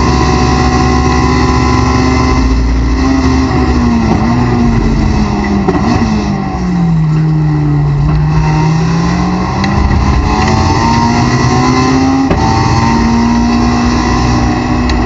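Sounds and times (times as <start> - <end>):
race car engine accelerating: 0.0 - 15.0.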